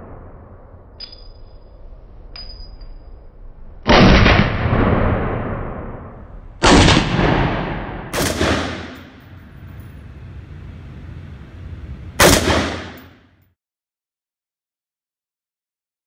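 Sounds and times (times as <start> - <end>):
rifle shots: 3.9 - 10.6, 12.1 - 13.2.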